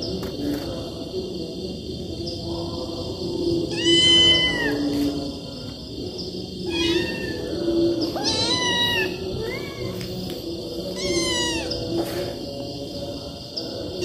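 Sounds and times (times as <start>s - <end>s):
kittens meowing: 3.7s - 5.0s, 6.6s - 10.2s, 10.9s - 11.9s.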